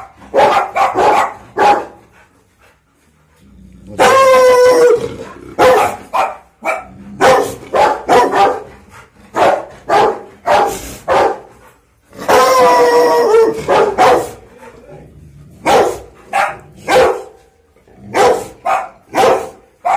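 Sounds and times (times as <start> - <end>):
dog barking: 0.0 - 2.0, 4.0 - 5.0, 5.6 - 8.7, 9.3 - 11.5, 12.2 - 14.4, 15.6 - 17.4, 18.1 - 19.9.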